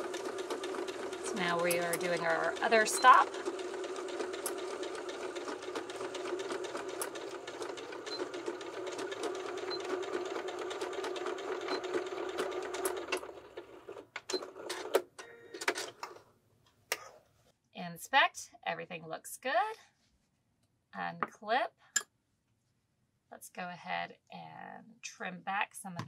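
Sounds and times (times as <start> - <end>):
sewing machine running: 0.0 - 15.0.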